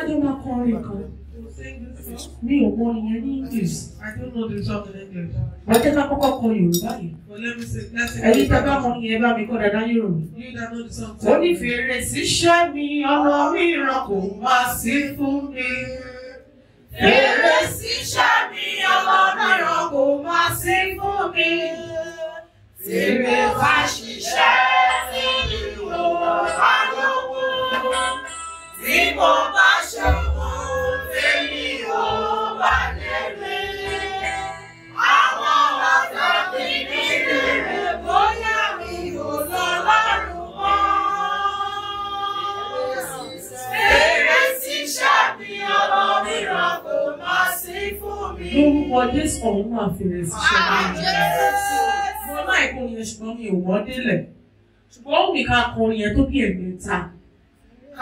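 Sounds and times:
congregation singing: 13.5 - 49.6, 50.3 - 52.8.

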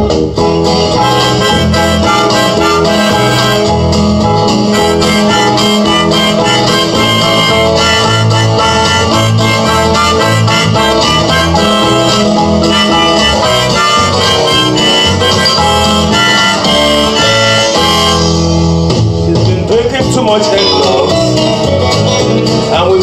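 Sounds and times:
repeating bass line: 0.0 - 22.8
backing track guitar: 0.0 - 23.0
harmonica playing a tune: 0.8 - 18.8.

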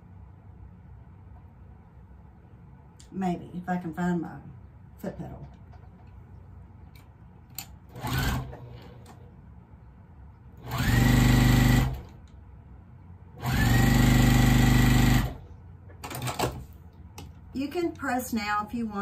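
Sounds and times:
sewing machine stitching: 7.9 - 9.2, 10.6 - 12.2, 13.4 - 15.4.

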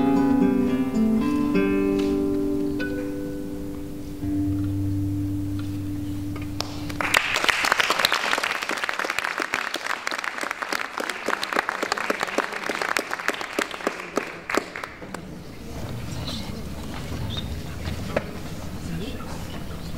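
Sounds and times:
classical guitar low notes: 0.0 - 7.1
audience applauding: 6.6 - 15.3.

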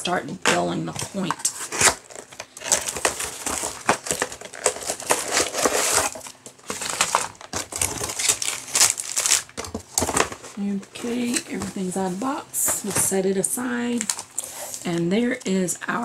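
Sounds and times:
cardboard and paper rustling: 0.4 - 13.2.

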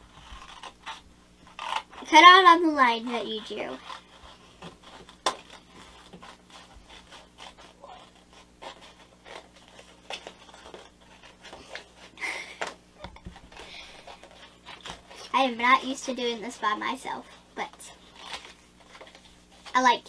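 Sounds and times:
paper rustling: 0.0 - 20.0
scissors snipping paper: 0.1 - 15.3.

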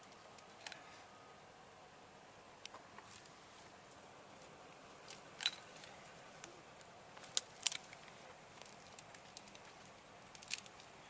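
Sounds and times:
dry cane stalks snapping: 4.4 - 10.9.

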